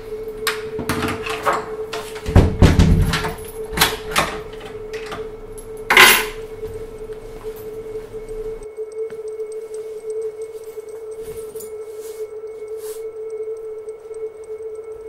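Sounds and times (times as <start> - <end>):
steady hum: 0.0 - 15.0
household knocks and clatters: 2.2 - 3.4.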